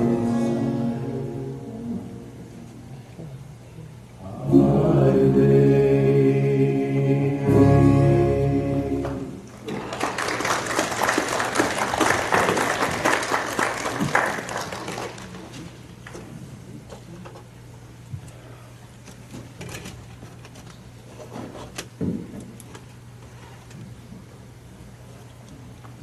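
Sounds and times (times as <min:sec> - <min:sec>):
gospel song closing chord: 0:00.0 - 0:03.0, 0:04.2 - 0:09.5
congregation applauding: 0:09.7 - 0:15.5.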